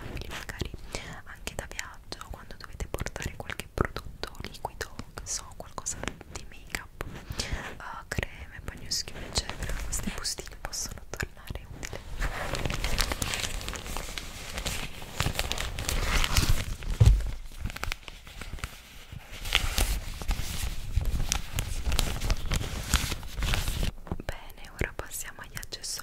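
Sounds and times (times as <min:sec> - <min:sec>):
plastic bag crinkling: 0:11.8 - 0:23.9
bump against microphone: 0:16.9 - 0:17.5.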